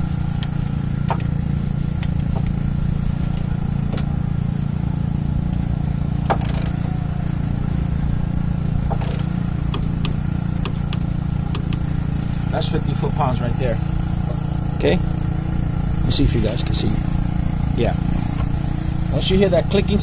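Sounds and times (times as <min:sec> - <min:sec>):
torque wrench clicks: 0:08.9 - 0:12.0.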